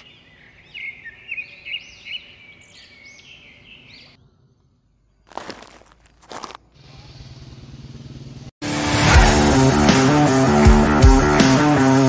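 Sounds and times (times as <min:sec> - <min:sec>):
bird chirping: 0:00.0 - 0:05.4.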